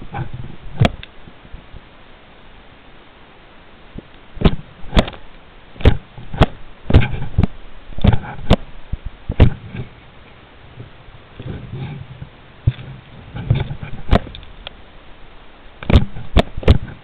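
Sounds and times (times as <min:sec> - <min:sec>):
knocks and taps on camera: 0:15.8 - 0:17.0.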